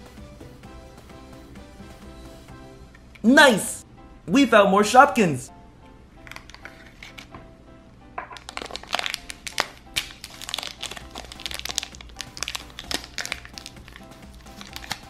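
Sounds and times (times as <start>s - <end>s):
background music: 0.0s - 15.0s
plastic toys crinkling and rustling: 6.3s - 7.4s, 8.2s - 15.0s.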